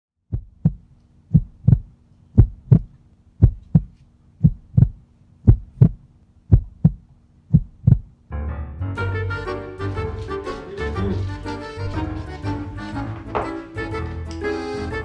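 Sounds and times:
faint steady hum: 0:00.2 - 0:08.4
heartbeat thumps: 0:00.3 - 0:08.2.

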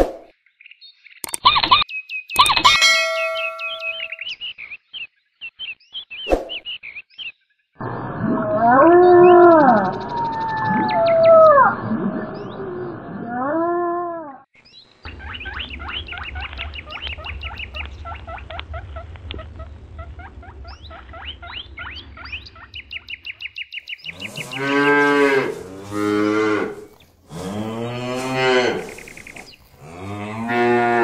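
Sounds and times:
cattle mooing: 0:24.1 - 0:29.1, 0:29.8 - 0:31.0.

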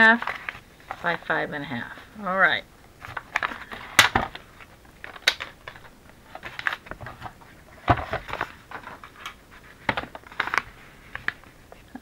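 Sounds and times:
paper rustling and sliding: 0:03.0 - 0:11.8.

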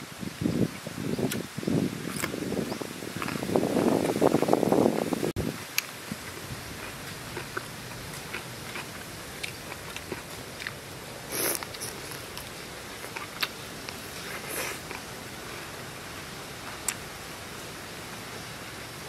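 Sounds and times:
steady hiss: 0:00.0 - 0:19.0
chicken being chewed: 0:03.1 - 0:04.5, 0:05.7 - 0:15.7.

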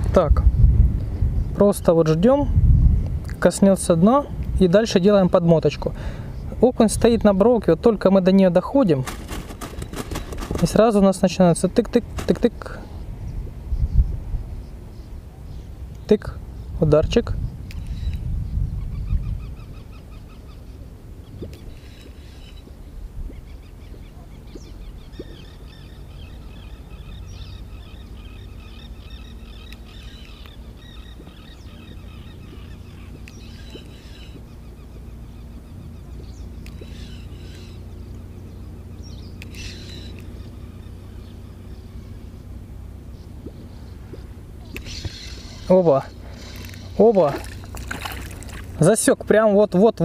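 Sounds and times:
low steady rumble: 0:00.0 - 0:50.0
rapid pulsed animal calls: 0:24.9 - 0:42.4, 0:43.1 - 0:48.7.

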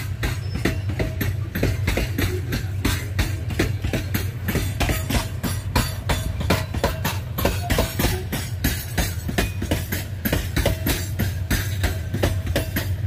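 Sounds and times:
freight wagons rolling past: 0:00.0 - 0:13.0
wheels clattering over rails: 0:00.0 - 0:13.0.

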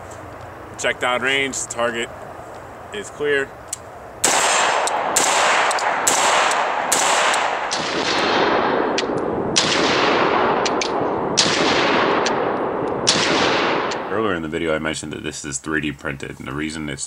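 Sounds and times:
rifle shots with echo: 0:04.2 - 0:14.4.

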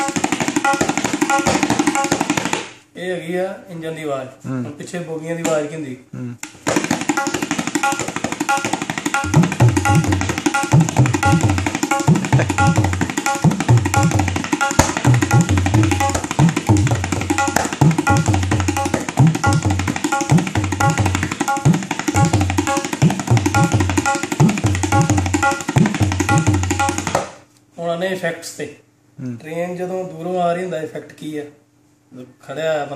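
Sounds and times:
tabla treble drum patter: 0:00.0 - 0:02.8, 0:06.4 - 0:27.4.

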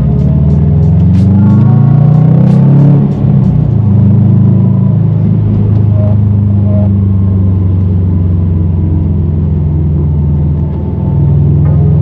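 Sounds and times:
car engine droning in cabin: 0:00.0 - 0:12.0
road noise: 0:00.0 - 0:12.0.

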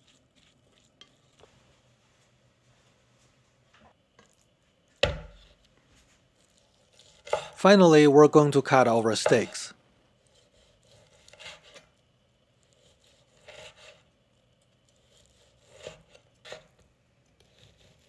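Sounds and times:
knife slicing steak on board: 0:06.4 - 0:07.6, 0:10.2 - 0:12.0, 0:12.6 - 0:14.0, 0:14.9 - 0:16.8.

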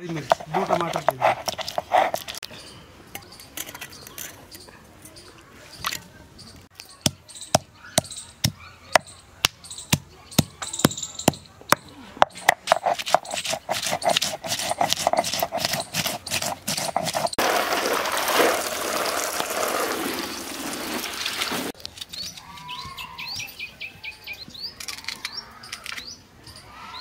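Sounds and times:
birds chirping: 0:00.0 - 0:17.4, 0:19.6 - 0:27.0
water splashing: 0:17.3 - 0:21.8.

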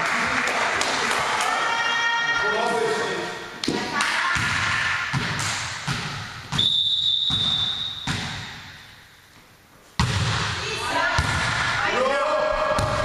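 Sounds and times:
ball bouncing on gym floor: 0:03.6 - 0:08.8, 0:10.0 - 0:11.8, 0:12.6 - 0:13.0
referee whistle: 0:06.5 - 0:08.2.

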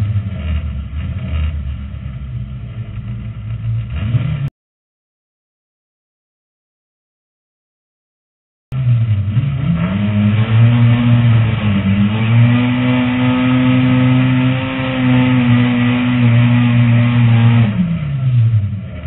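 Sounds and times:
race car engine revving: 0:00.0 - 0:04.5, 0:08.7 - 0:19.0.

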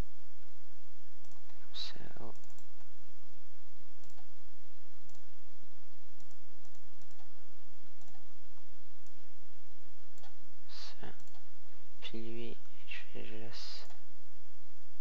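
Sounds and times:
microphone hum and hiss: 0:00.0 - 0:15.0
computer mouse clicks: 0:01.2 - 0:01.6, 0:02.3 - 0:02.9, 0:04.0 - 0:04.3, 0:06.2 - 0:07.3, 0:07.9 - 0:08.3, 0:10.2 - 0:10.4, 0:11.2 - 0:11.5.

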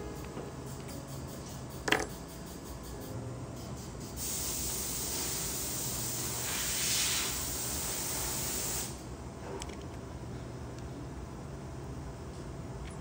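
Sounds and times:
steady hiss: 0:00.6 - 0:09.1.

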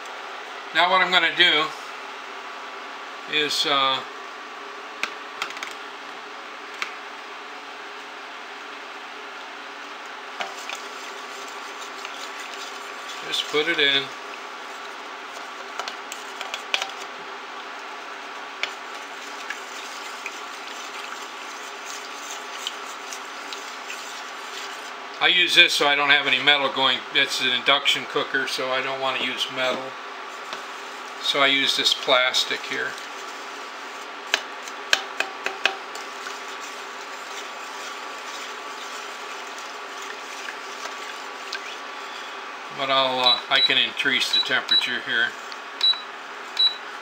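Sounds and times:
induction cooker hum: 0:00.0 - 0:47.0
spatula stirring wet powder: 0:10.3 - 0:17.1, 0:18.3 - 0:25.1, 0:29.6 - 0:42.3
spatula knocking on metal pot: 0:34.3 - 0:35.8
spatula scraping metal pot: 0:35.9 - 0:42.2.

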